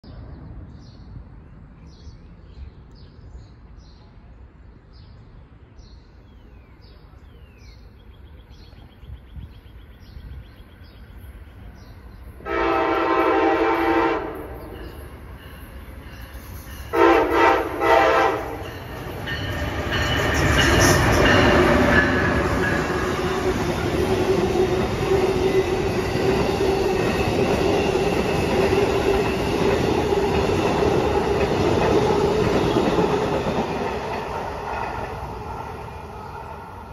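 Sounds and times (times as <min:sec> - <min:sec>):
rumble of passing train: 0:00.0 - 0:36.9
train horn blasts: 0:12.4 - 0:14.9, 0:16.9 - 0:18.8.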